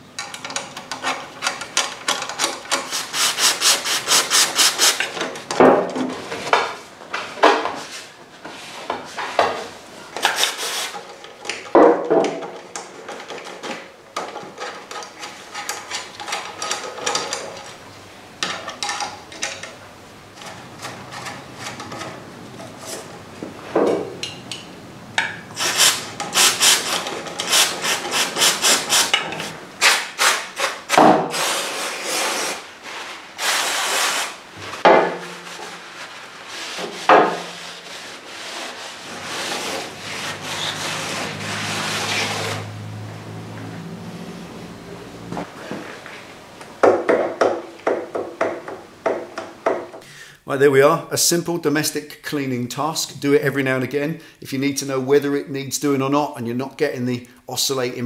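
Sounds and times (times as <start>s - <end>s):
brush scrubbing metal: 2.3s - 5.0s, 10.2s - 11.2s, 25.6s - 42.8s.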